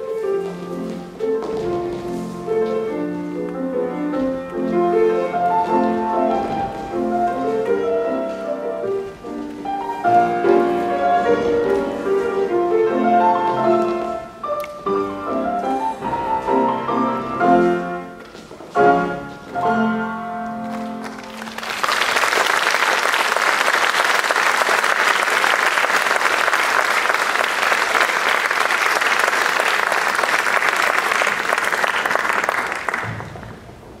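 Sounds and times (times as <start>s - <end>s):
piano music: 0.0s - 21.9s
audience applause: 20.8s - 33.4s.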